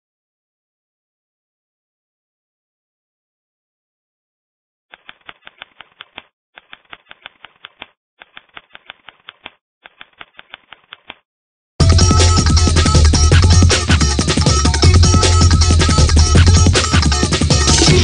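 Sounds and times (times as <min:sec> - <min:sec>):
keyboard key clicks: 0:05.0 - 0:11.2
electronic music with heavy bass: 0:11.8 - 0:18.0.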